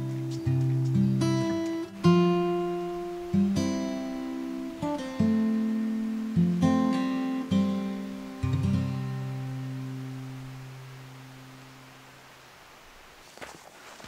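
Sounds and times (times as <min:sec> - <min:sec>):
acoustic guitar chords plucked: 0:00.0 - 0:12.2.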